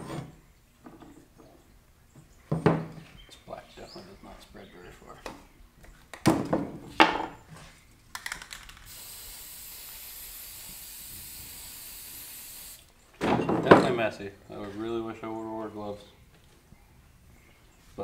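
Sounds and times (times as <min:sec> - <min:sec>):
quick clicks: 0:08.1 - 0:08.9
spray can hissing: 0:08.5 - 0:12.9.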